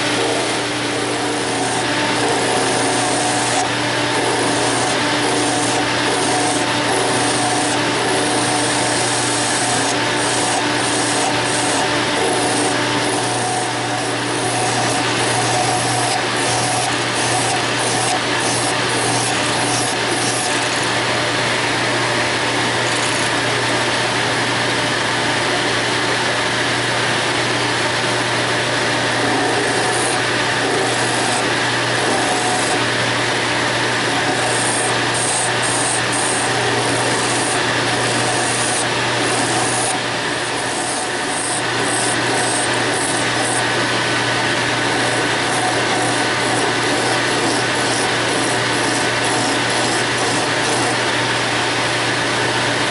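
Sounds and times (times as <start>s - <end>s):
sanding drum grinding acrylic: 0.0s - 20.8s, 29.2s - 32.8s, 34.0s - 44.1s, 44.7s - 51.2s
vacuum running: 0.0s - 52.9s.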